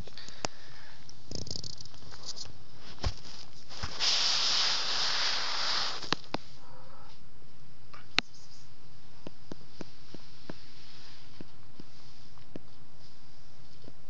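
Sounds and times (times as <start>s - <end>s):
kitten hissing: 3.8s - 7.1s.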